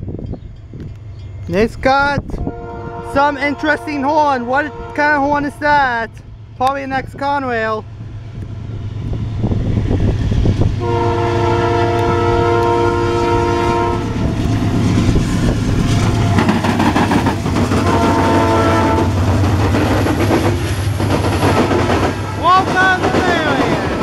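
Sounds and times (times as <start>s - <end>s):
diesel engines rumbling: 0.0s - 24.0s
locomotive air horn: 2.4s - 5.7s, 10.8s - 14.3s, 17.7s - 19.2s
wheels clattering on rails: 14.4s - 24.0s.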